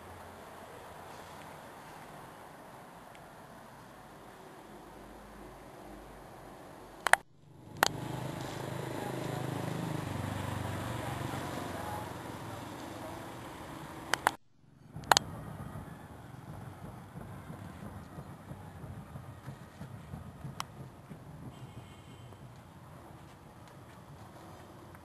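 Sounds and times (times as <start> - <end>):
sharp clicks: 7.0 - 8.6, 14.1 - 15.3.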